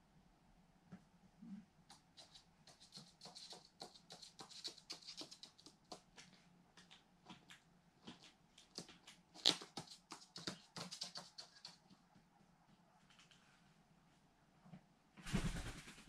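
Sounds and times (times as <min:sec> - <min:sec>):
bird claws clicking on floor: 0:01.9 - 0:12.0.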